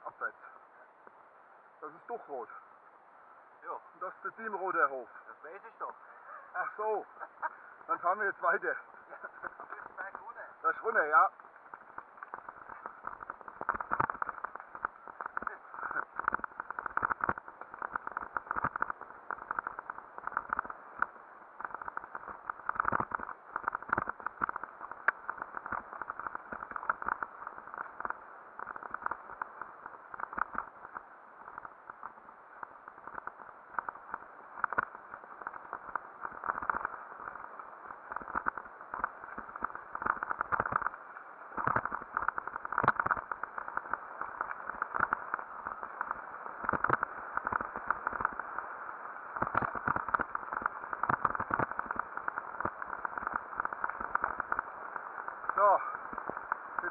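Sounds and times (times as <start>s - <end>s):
muffled rushing noise: 3.6s - 56.9s
bike clicks and knocks: 11.6s - 32.2s.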